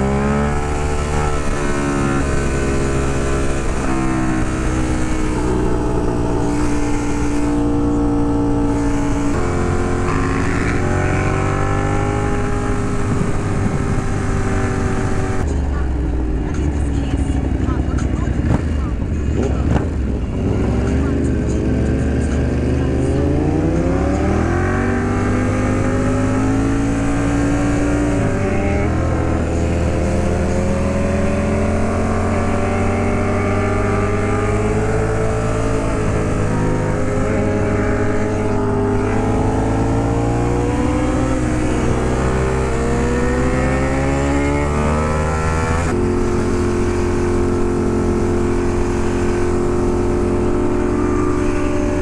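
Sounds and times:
motorcycle engine pulling: 0.0s - 15.5s.

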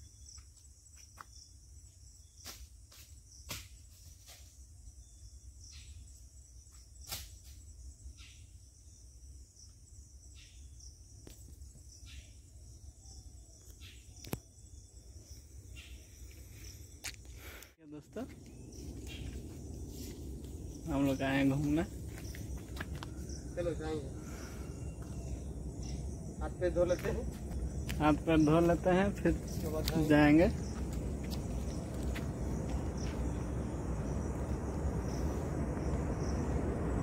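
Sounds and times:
insects chirping: 0.0s - 37.0s
low rumble: 18.3s - 37.0s.

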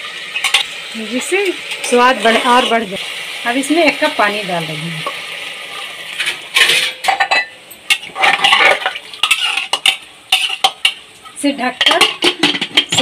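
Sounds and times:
metal spatula clanking and scraping: 0.4s - 2.8s, 5.0s - 13.0s.

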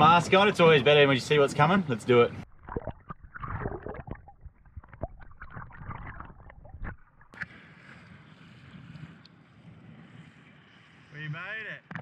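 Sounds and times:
muffled underwater clicks and knocks: 2.6s - 7.5s.

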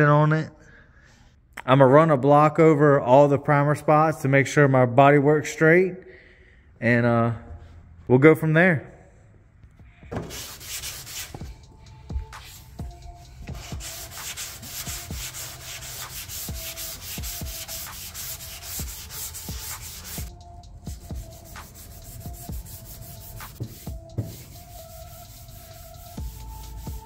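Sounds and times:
sandpaper rubbing on panel: 10.2s - 11.6s, 12.2s - 20.3s, 20.9s - 27.0s.

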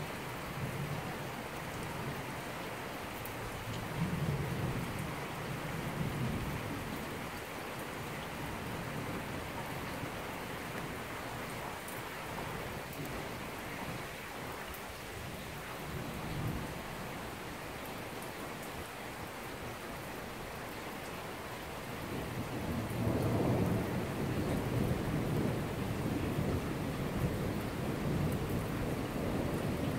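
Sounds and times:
heavy rain falling: 0.0s - 29.9s
thunder rumbling: 22.1s - 29.9s.

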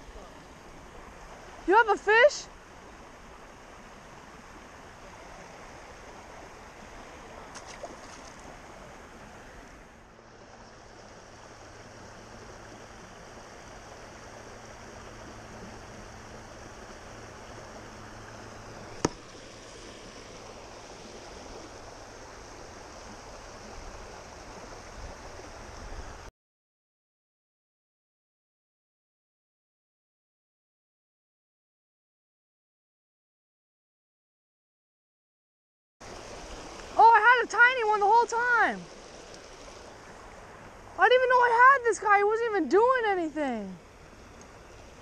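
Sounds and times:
creek water flowing: 0.0s - 26.3s, 36.0s - 45.0s.

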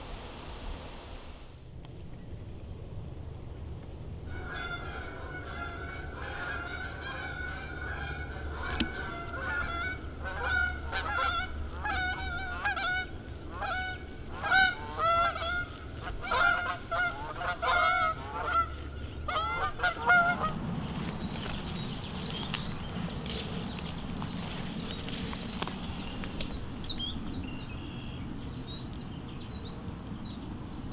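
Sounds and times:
geese honking: 4.3s - 26.4s.

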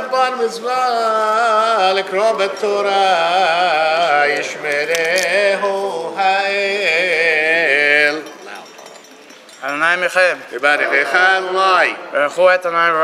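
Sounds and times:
man chanting: 0.0s - 8.4s.

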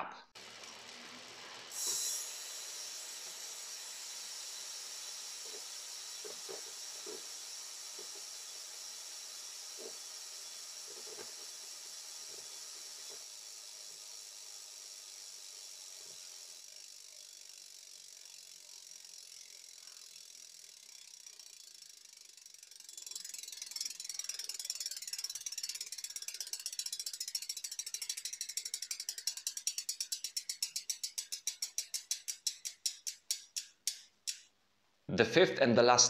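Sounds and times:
spinning bicycle wheel whir: 0.3s - 34.6s
freehub pawl clicking: 0.4s - 34.6s.

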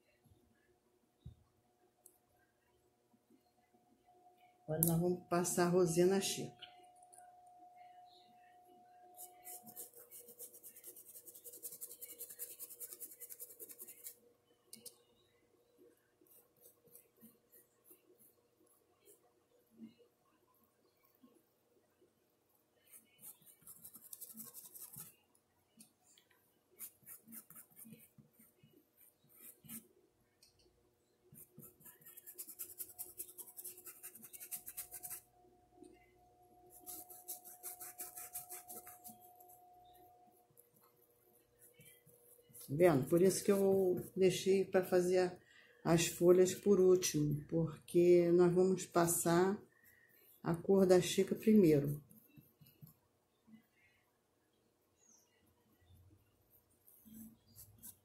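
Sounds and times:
paintbrush scratchy strokes: 9.1s - 14.2s, 15.9s - 20.0s, 22.8s - 25.3s, 26.7s - 30.0s, 31.3s - 44.3s, 56.4s - 58.0s.

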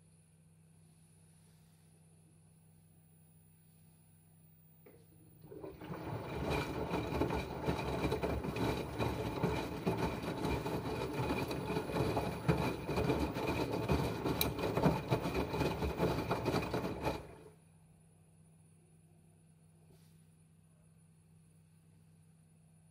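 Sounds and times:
dense crackling and rumbling: 5.6s - 17.4s.

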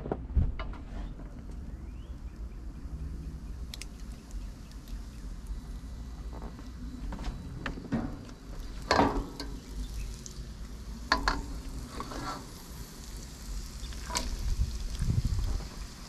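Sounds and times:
food sizzling in a wok: 8.6s - 16.0s.

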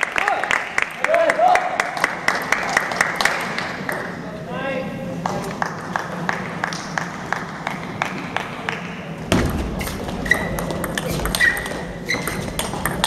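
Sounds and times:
ball pinging on bat and table: 9.3s - 13.0s.

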